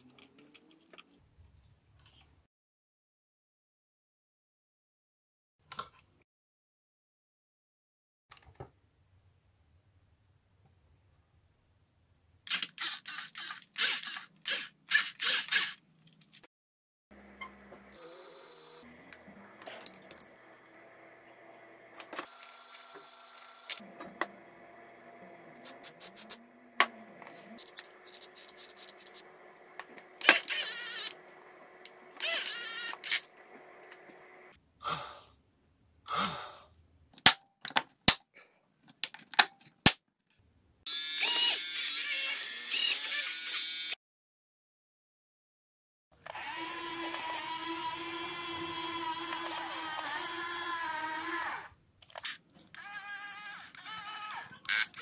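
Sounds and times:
small electric motors whirring: 12.5s - 15.8s, 17.3s - 34.6s, 40.9s - 44.0s, 46.2s - 55.0s
electric motor whine: 17.2s - 34.6s, 46.3s - 51.7s
wire cutters snipping: 25.6s - 29.2s, 29.8s - 31.2s.

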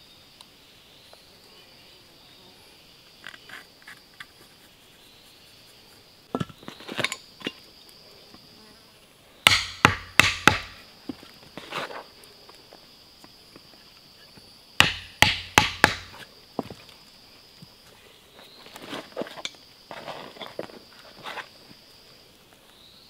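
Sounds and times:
high-pitched insect call: 0.0s - 23.0s
sharp wooden knocks: 9.5s - 10.8s, 14.8s - 16.2s.

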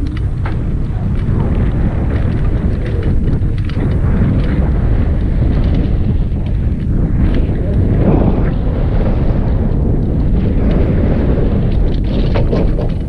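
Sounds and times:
tyres on loose dirt: 0.0s - 13.0s
wind rumble on microphone: 0.0s - 13.0s
light clicks and rattles: 11.7s - 13.0s.

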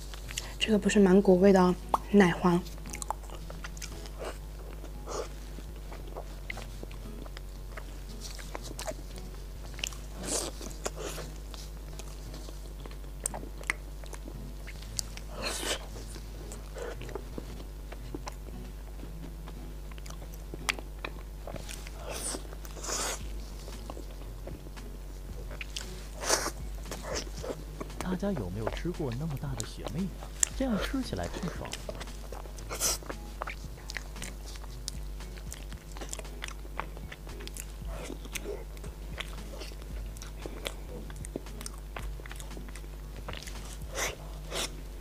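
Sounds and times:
wet chewing and lip smacks: 0.0s - 0.6s, 1.8s - 44.8s
steady low hum: 0.0s - 45.0s.

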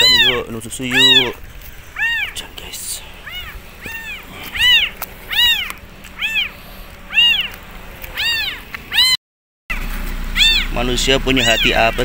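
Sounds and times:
kitten meowing: 0.0s - 9.2s, 10.4s - 10.8s, 11.4s - 12.0s.

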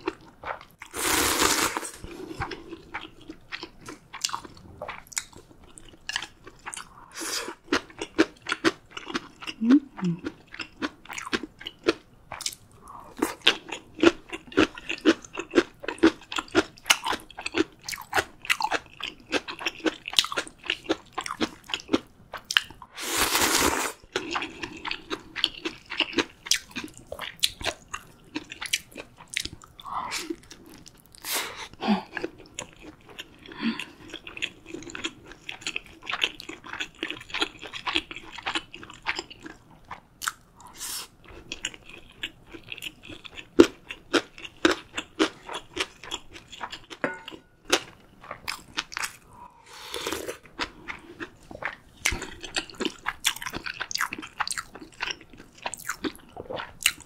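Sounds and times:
slurping noodles: 0.8s - 2.6s
wet chewing with crunches: 49.9s - 57.0s.

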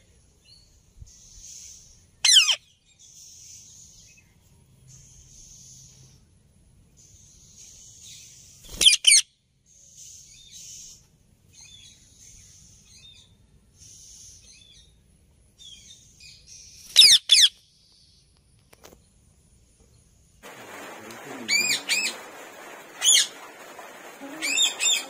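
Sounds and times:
parakeet harsh calls: 2.2s - 2.6s, 8.8s - 9.2s, 17.0s - 17.5s.

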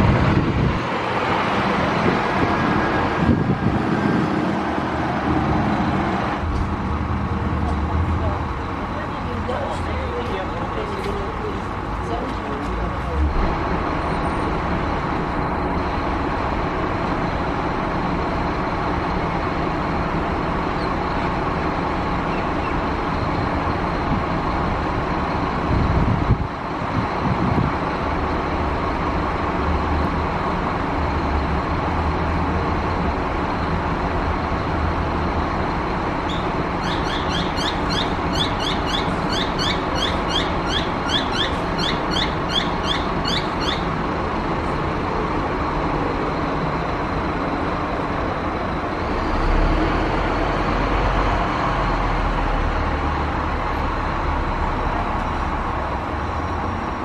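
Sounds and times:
road traffic drone: 0.0s - 57.0s
rapid high chirps: 36.3s - 43.9s.

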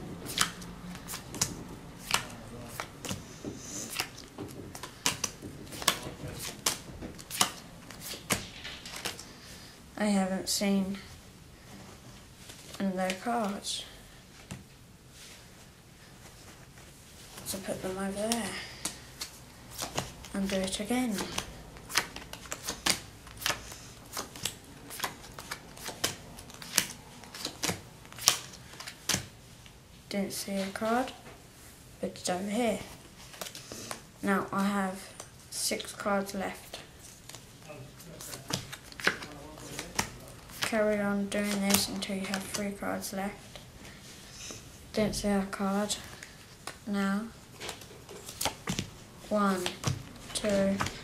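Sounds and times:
playing cards snapping: 0.3s - 3.2s, 3.8s - 9.3s, 18.8s - 29.3s, 38.2s - 40.8s.

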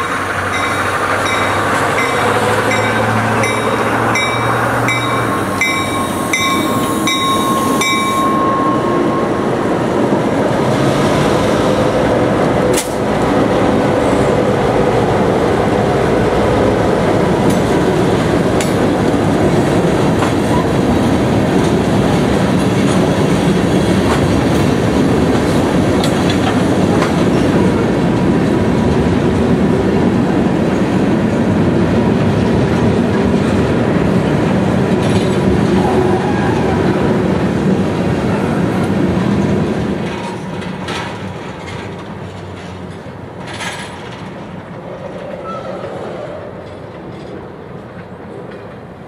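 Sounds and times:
train wheels clicking over rail joints: 0.0s - 8.7s, 12.4s - 13.3s, 17.2s - 29.7s, 38.8s - 49.0s
train cars clanking: 0.0s - 49.0s.

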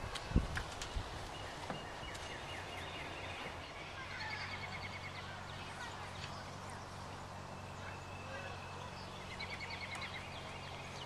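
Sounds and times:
small birds chirping: 0.0s - 11.0s
steady low hum: 0.0s - 11.0s.

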